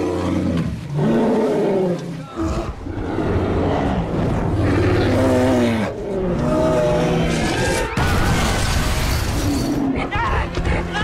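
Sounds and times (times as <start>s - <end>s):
explosion and fire: 7.3s - 9.8s.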